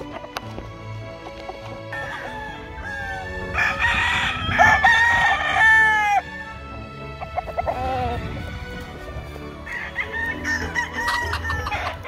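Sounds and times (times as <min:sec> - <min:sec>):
rooster crowing: 0:01.9 - 0:06.6, 0:09.6 - 0:12.0.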